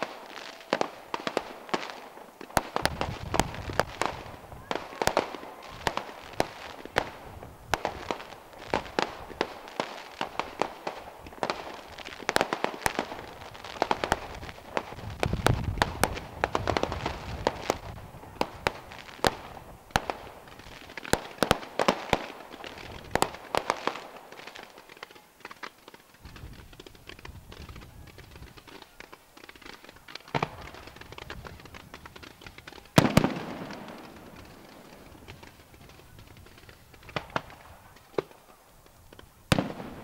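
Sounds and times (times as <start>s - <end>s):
fireworks bangs and crackles: 0.0s - 40.0s
heavy firework booms: 2.6s - 10.6s, 11.3s - 20.6s.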